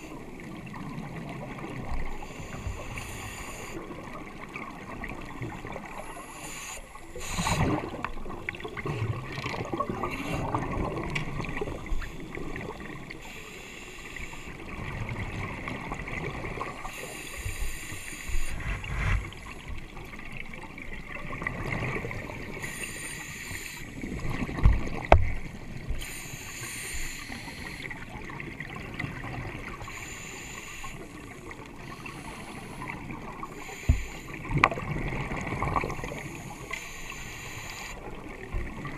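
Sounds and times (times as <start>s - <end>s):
regulator bubbles gurgling underwater: 0.0s - 38.9s
muffled water wash: 14.2s - 30.0s.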